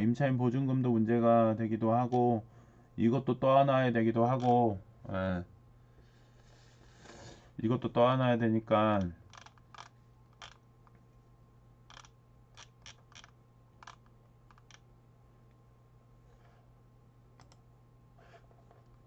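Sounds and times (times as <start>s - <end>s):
faint steady hum: 0.0s - 19.0s
computer mouse clicks: 9.3s - 10.6s, 11.9s - 14.8s, 17.4s - 17.6s.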